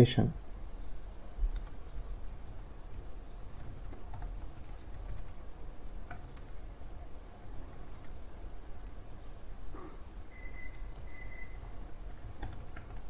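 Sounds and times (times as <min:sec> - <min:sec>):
keyboard keystrokes clicking: 0:01.5 - 0:02.6, 0:03.5 - 0:05.4, 0:07.4 - 0:08.2, 0:12.1 - 0:13.0.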